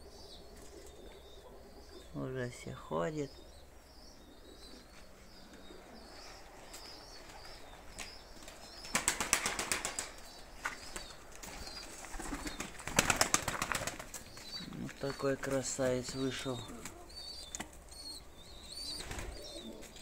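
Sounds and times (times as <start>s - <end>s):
pigeon wingbeats: 8.4s - 14.9s, 18.9s - 20.0s.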